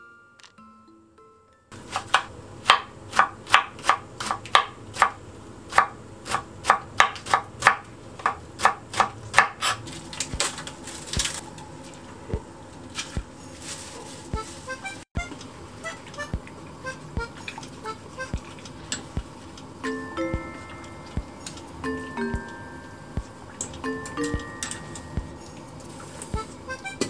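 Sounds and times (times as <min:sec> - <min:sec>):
knife chopping on cutting board: 0:01.9 - 0:10.4.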